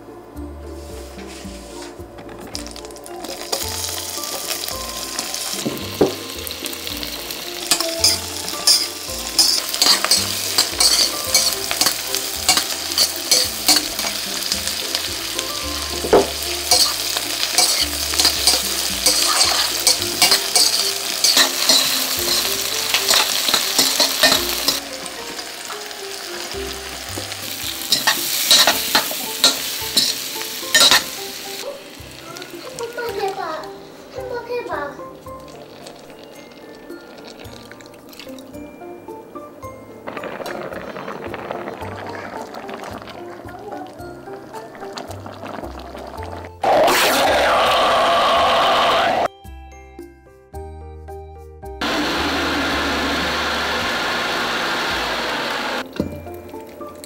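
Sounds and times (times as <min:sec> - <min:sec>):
vegetables sizzling in a pan: 0:01.2 - 0:49.3, 0:51.8 - 0:57.0
metal spoon scraping a pan: 0:07.6 - 0:15.0, 0:16.1 - 0:31.4.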